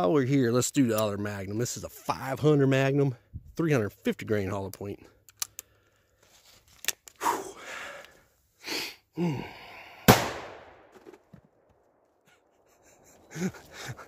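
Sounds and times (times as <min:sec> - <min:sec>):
short breath: 0:07.2 - 0:10.1
revolver gunshot: 0:10.1 - 0:10.9.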